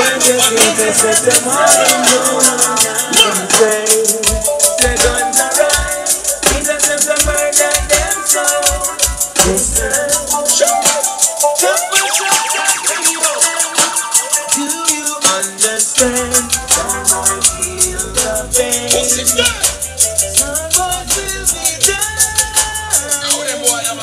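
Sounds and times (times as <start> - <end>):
shaker or hi-hat pattern: 0.0 - 24.0
deep bass notes: 9.4 - 10.3, 16.0 - 23.4.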